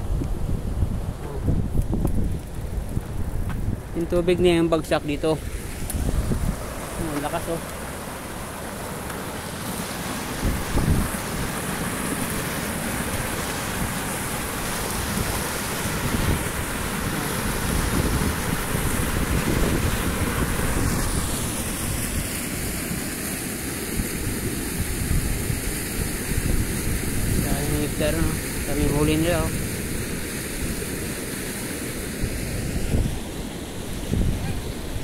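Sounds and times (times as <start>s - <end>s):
water gushing from pipe: 4.9s - 32.6s.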